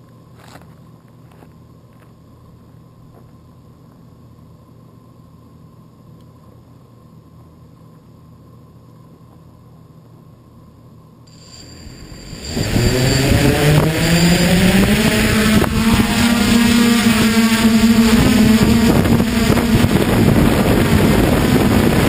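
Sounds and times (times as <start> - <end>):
faint electronic hum with whine: 0.0 - 22.0.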